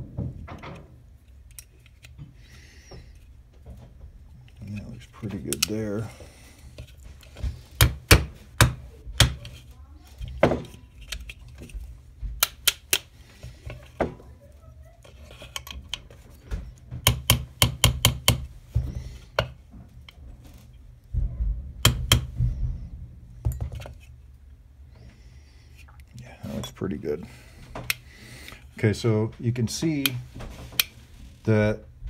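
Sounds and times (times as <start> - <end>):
small hammer tapping pins: 17.0 - 18.5, 21.8 - 22.4.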